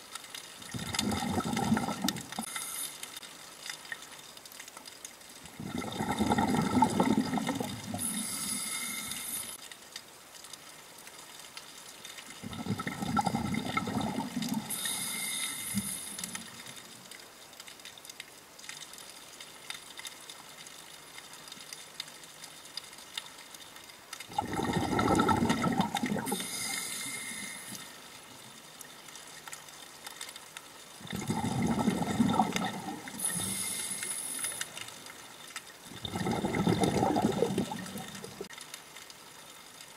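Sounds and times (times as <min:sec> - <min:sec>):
exhaled bubbles underwater: 0:00.6 - 0:02.5, 0:05.4 - 0:09.5, 0:12.4 - 0:17.0, 0:24.3 - 0:27.9, 0:31.0 - 0:35.0, 0:35.8 - 0:38.5
regulator hiss: 0:02.4 - 0:03.2, 0:07.9 - 0:09.6, 0:14.7 - 0:16.8, 0:26.2 - 0:28.1, 0:33.0 - 0:34.8.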